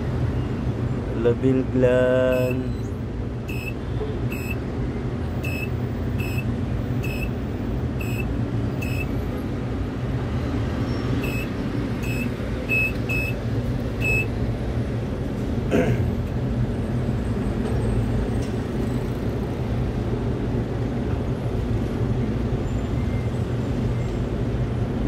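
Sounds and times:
short high warning beeps: 2.3 - 2.9, 3.5 - 4.6, 5.4 - 7.4, 8.0 - 9.1, 11.2 - 13.4, 14.0 - 14.3
crane mechanical hum: 2.3 - 19.0.

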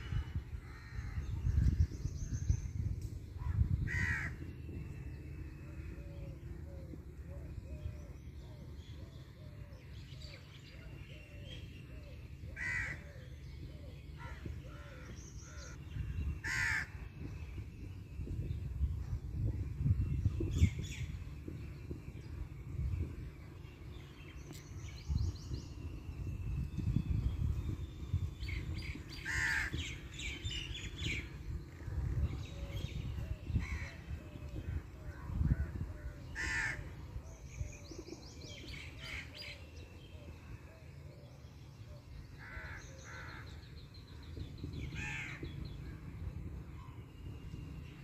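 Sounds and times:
loud harsh bird calls: 14.2 - 17.0, 29.2 - 31.3, 35.5 - 37.2.

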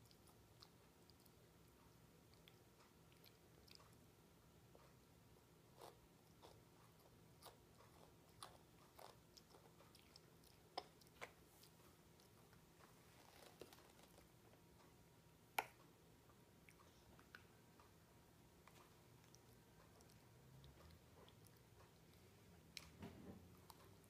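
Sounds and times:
toddler chewing: 0.0 - 4.0, 5.7 - 14.6, 18.6 - 24.0.

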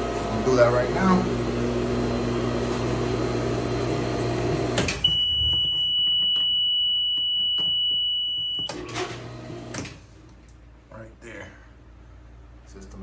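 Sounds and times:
high-pitched electronic alarm beep: 5.0 - 8.8.

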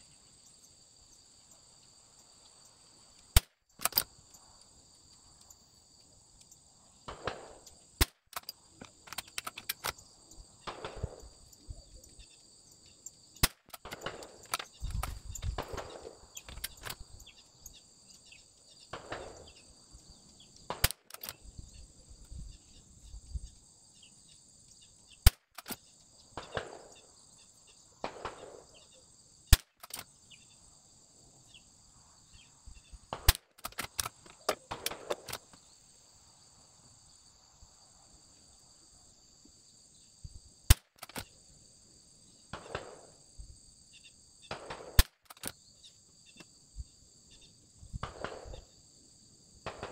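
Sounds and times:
rifle shots: 7.1 - 8.4, 10.6 - 11.2, 13.4 - 17.0, 18.9 - 19.5, 20.7 - 21.3, 26.4 - 27.0, 28.0 - 28.8, 33.1 - 35.5, 42.5 - 43.1, 44.5 - 45.5, 48.0 - 48.6, 49.6 - 49.9.

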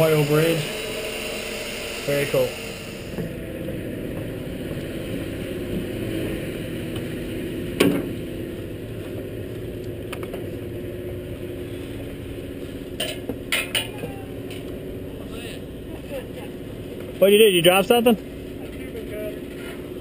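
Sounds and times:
low mechanical drone: 0.0 - 20.0.

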